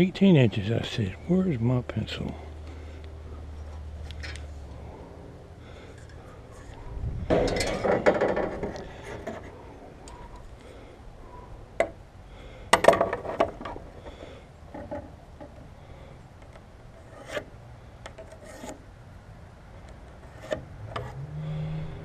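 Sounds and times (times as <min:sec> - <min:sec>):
wood and metal clattering: 0:06.0 - 0:10.2, 0:12.7 - 0:15.7.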